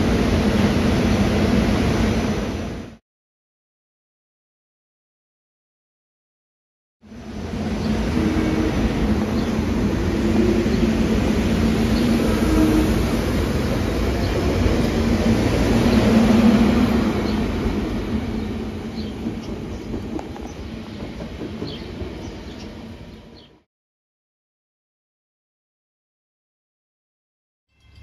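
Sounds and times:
train wheels rumbling on rails: 7.2 - 23.5.

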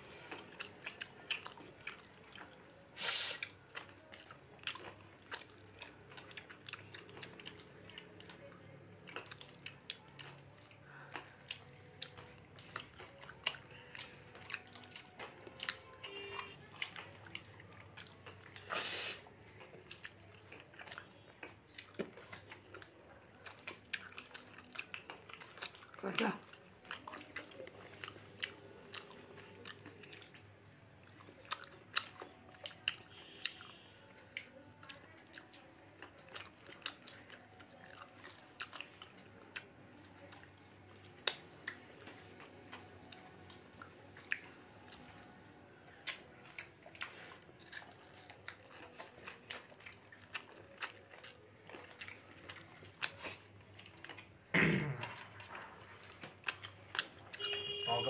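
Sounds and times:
person chewing food: 0.0 - 57.9.

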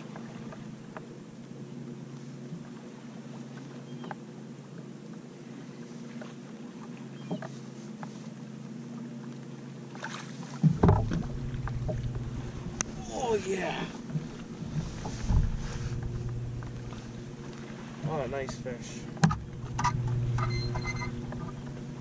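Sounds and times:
electric trolling motor hum: 10.6 - 22.0
low rumble: 10.7 - 22.0.

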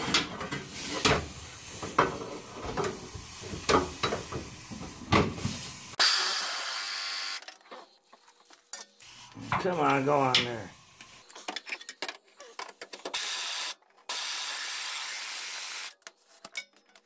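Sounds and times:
air impact wrench hiss and whine: 0.6 - 7.4, 13.1 - 16.0.

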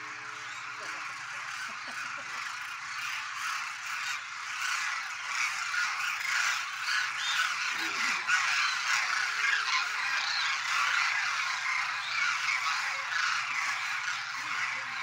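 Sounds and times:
flock of cranes calling: 0.0 - 15.0.

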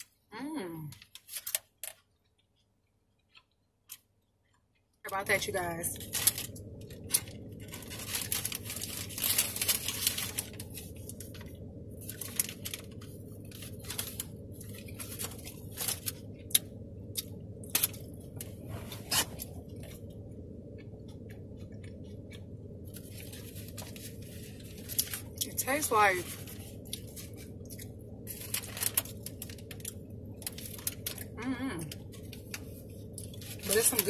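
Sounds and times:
paper bag crinkling: 1.0 - 2.0, 6.0 - 16.4, 22.9 - 34.0
steady low hum: 1.9 - 34.0.

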